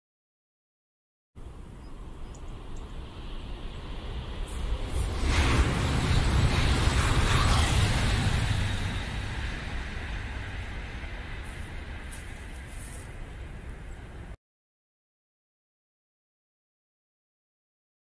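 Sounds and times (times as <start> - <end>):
train rumbling over bridge: 1.4 - 14.4
faint high ticks: 2.3 - 2.9.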